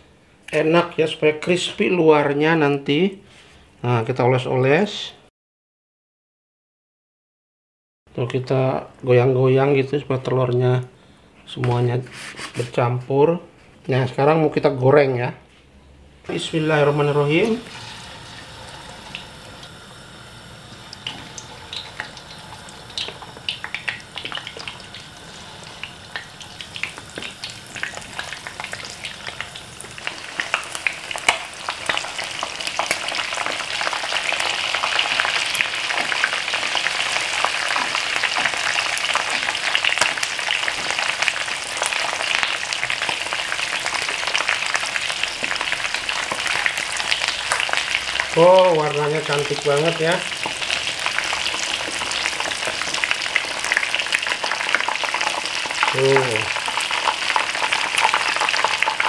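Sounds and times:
chicken deep-frying in oil: 16.3s - 59.0s.

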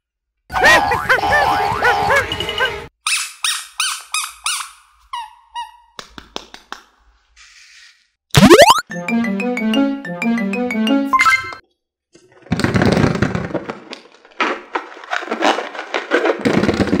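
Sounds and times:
rubber squeeze toy squeaking: 3.0s - 5.9s
cartoon sound effects: 8.4s - 11.6s.

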